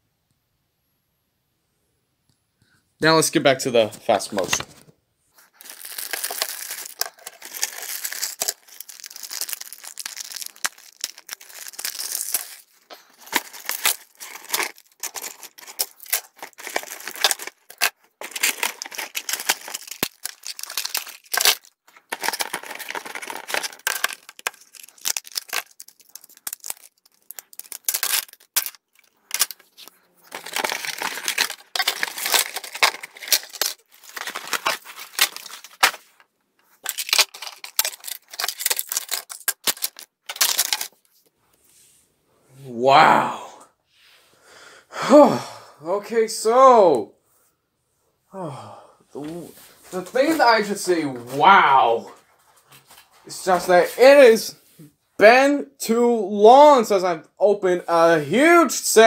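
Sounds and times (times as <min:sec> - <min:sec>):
plastic bags crinkling: 0:05.4 - 0:41.1.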